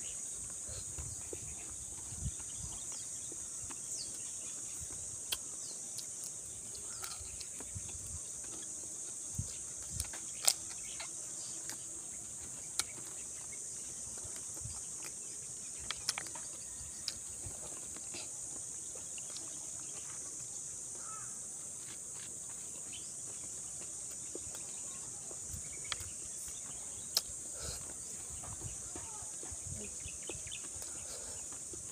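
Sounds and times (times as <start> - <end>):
insects droning: 0.0 - 31.9
crunchy eating clicks: 5.2 - 19.7, 25.5 - 27.4.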